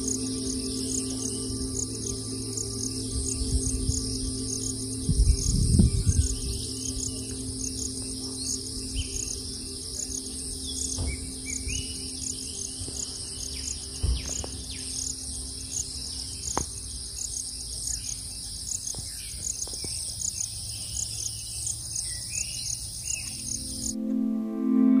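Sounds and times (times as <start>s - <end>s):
soft ambient music: 0.0s - 16.5s, 23.3s - 25.0s
insects buzzing: 0.0s - 24.0s.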